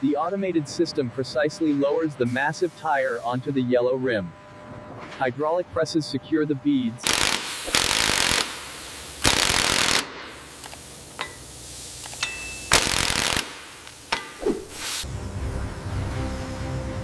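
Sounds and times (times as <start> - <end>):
pneumatic impact wrench rattling: 7.0 - 15.0.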